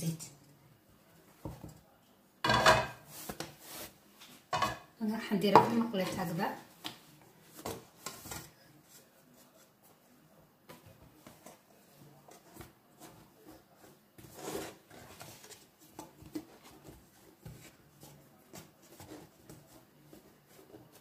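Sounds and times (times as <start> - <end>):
hands rubbing and patting dough: 3.0 - 4.5, 5.6 - 21.0.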